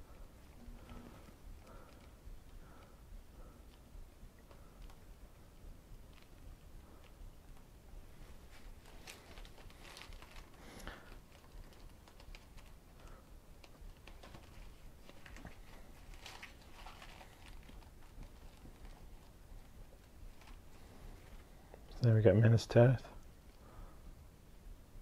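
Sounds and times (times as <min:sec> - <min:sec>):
book pages turning: 0:08.4 - 0:21.5.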